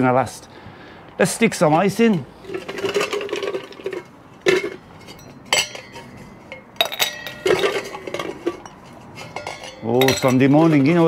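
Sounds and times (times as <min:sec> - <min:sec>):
glass ringing: 0:04.6 - 0:10.6.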